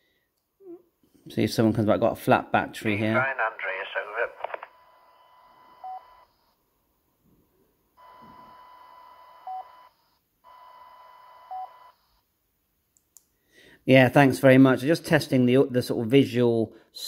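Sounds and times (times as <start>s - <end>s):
radio hiss with steady tone: 3.1s - 6.0s.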